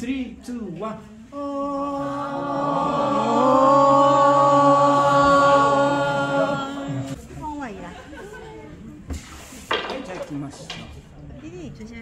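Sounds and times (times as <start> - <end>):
group singing a long note: 1.3 - 7.2.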